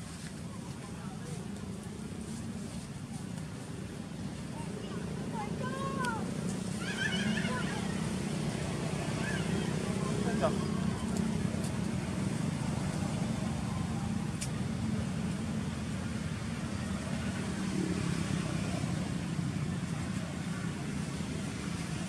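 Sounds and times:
low rumble of traffic: 0.0s - 22.0s.

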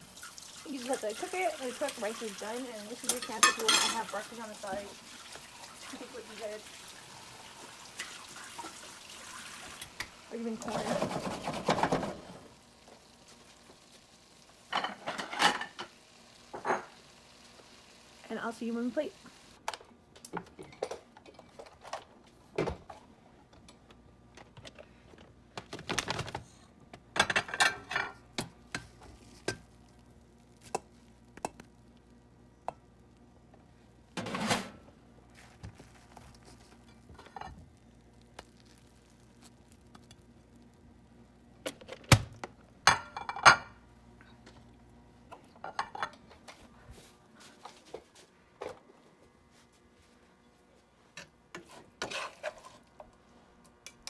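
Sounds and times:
dishes knocking and clattering: 10.7s - 12.4s, 14.7s - 15.9s, 27.1s - 29.6s, 42.9s - 43.8s.

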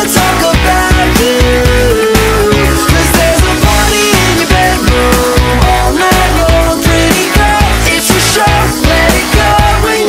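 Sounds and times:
pop-rock dance song: 0.0s - 10.0s.

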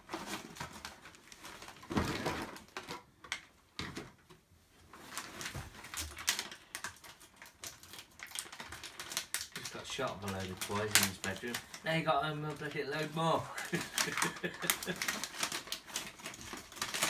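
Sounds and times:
wrapping paper crinkling and tearing: 4.9s - 17.0s.

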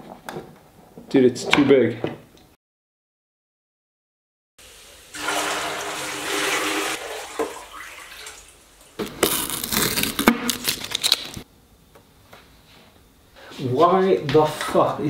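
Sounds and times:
water pouring into metal wheelbarrow: 4.7s - 8.6s
water splashing and slopping: 5.2s - 8.6s.

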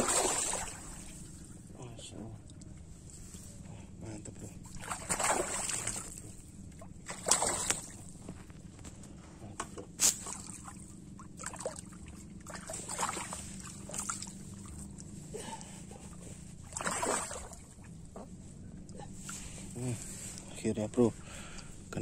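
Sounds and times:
water splashing and sloshing: 0.0s - 3.6s, 4.3s - 21.9s.

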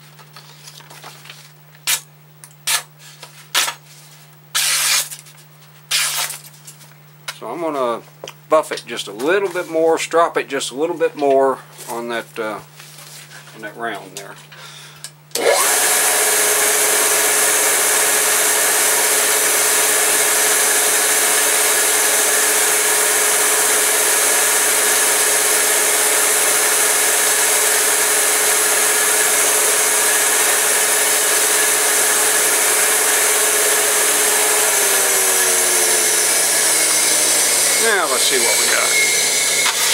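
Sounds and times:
knife-sharpening machine motor: 4.6s - 5.2s, 5.9s - 6.4s, 15.4s - 39.9s.

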